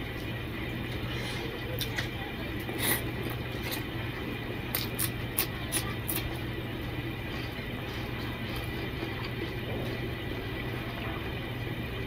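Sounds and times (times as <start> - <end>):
ceiling fan humming: 0.0 - 12.0
chewing and lip-smacking: 1.8 - 3.9, 4.7 - 6.5, 7.3 - 10.0.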